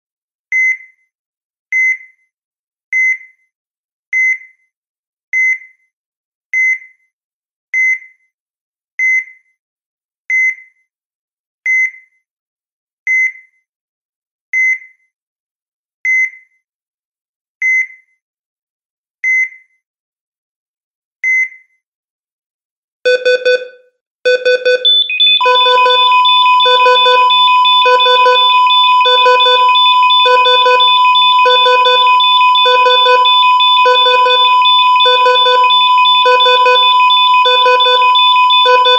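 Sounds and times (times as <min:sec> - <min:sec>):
heart monitor beeping: 0:23.1 - 0:23.7, 0:24.3 - 0:38.9
pulsing alarm beeps: 0:24.3 - 0:38.9.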